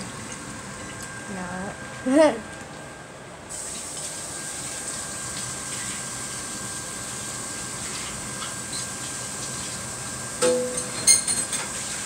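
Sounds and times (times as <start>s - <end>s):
oil sizzling and crackling: 3.5s - 12.0s
utensil clanking on cookware: 10.4s - 11.8s.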